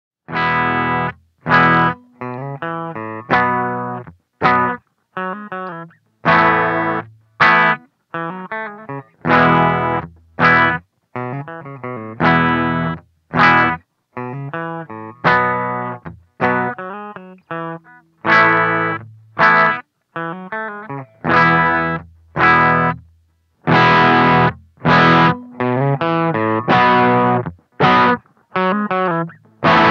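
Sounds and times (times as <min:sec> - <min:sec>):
electric guitar through an amp: 0:00.3 - 0:29.9.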